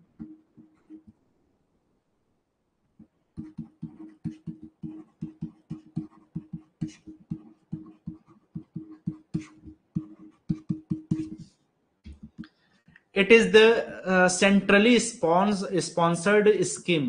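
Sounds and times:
stylus tapping and scraping on tablet: 0.0s - 1.2s, 3.0s - 13.1s.

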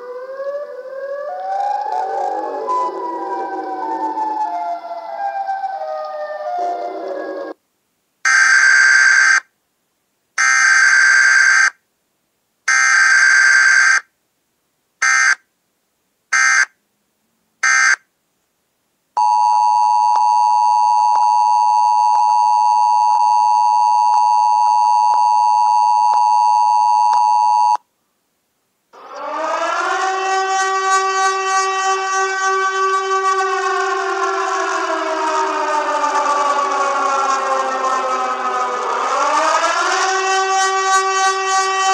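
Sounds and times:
pitched alarm blasts: 0.0s - 7.6s, 17.6s - 18.0s, 29.0s - 41.9s
siren winding up: 0.0s - 7.6s, 29.0s - 41.9s
steady alarm tone: 0.0s - 7.6s, 29.0s - 41.9s.

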